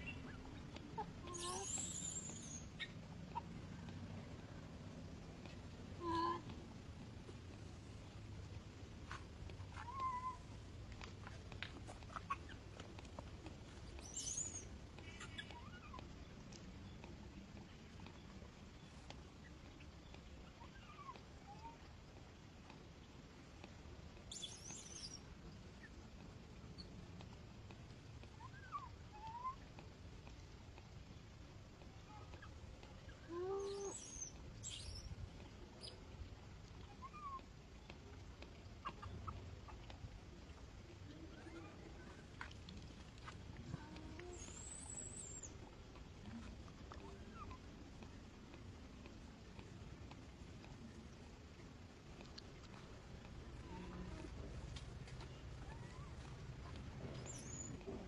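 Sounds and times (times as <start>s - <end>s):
faint ticks: 0.0s - 58.0s
low constant rumble: 0.0s - 58.0s
baby monkey calls: 1.3s - 2.9s, 14.0s - 16.0s
animal squeaks and chirps: 1.3s - 3.0s, 14.0s - 16.0s, 33.6s - 35.1s.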